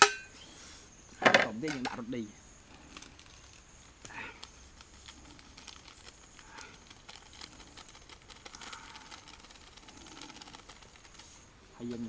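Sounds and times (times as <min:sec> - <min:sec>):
plastic packet crinkling: 0:02.8 - 0:11.4.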